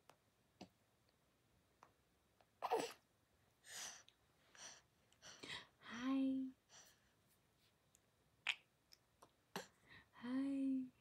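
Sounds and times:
soft breathy puffs: 3.6s - 7.8s.

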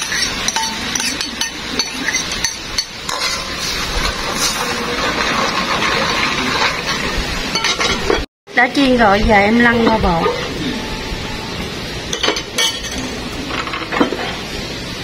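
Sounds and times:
metal ladle scraping a wok: 0.0s - 8.2s
sauce bubbling and sizzling: 0.0s - 8.2s
liquid pouring into a wok: 3.2s - 7.1s.

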